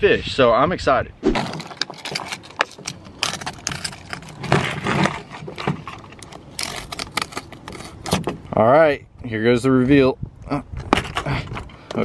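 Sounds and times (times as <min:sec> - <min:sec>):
plastic box rubbing and scraping: 0:01.3 - 0:08.5.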